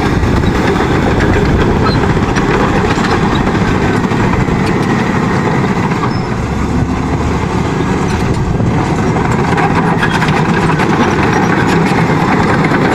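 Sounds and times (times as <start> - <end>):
bulldozer diesel engine running: 0.0 - 12.9.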